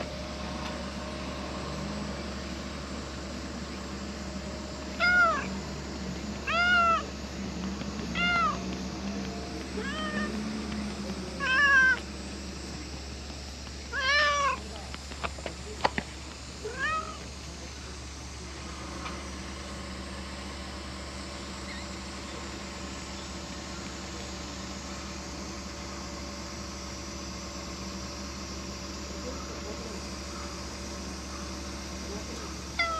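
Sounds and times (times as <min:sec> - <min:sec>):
cat meowing: 0:05.0 - 0:05.5, 0:06.5 - 0:07.1, 0:08.1 - 0:08.6, 0:09.8 - 0:10.4, 0:11.4 - 0:12.0, 0:13.9 - 0:14.6, 0:16.7 - 0:17.2.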